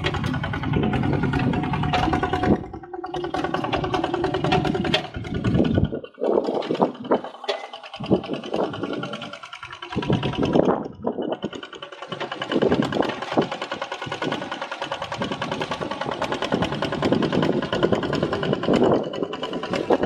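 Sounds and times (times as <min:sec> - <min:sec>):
diesel tractor engine running: 0:00.0 - 0:20.0.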